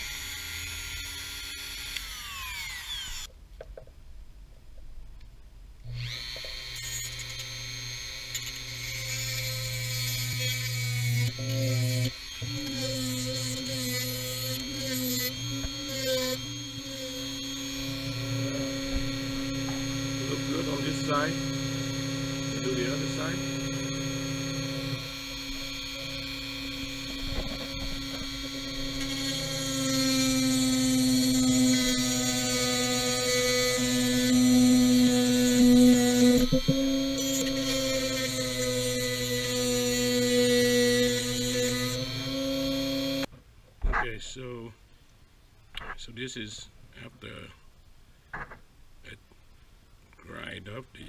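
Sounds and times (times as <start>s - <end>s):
rotary tool running: 0.0s - 3.3s, 5.9s - 43.3s
grinding metal: 5.9s - 43.3s.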